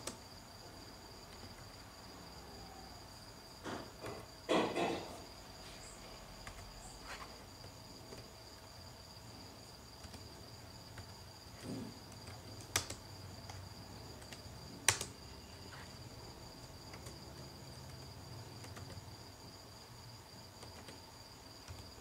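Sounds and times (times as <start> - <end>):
sharp clicks: 12.2 - 13.6, 14.2 - 15.2.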